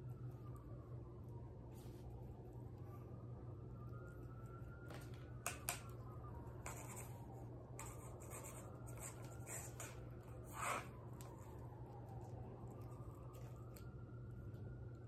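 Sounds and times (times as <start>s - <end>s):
cat claws scratching: 7.8s - 11.0s.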